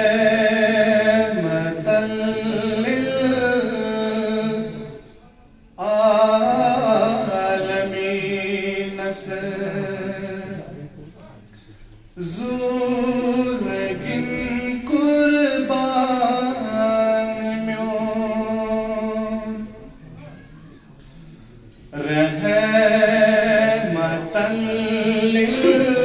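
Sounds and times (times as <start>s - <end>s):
man chanting over a microphone: 0.0s - 11.4s, 12.2s - 20.0s, 21.9s - 26.0s.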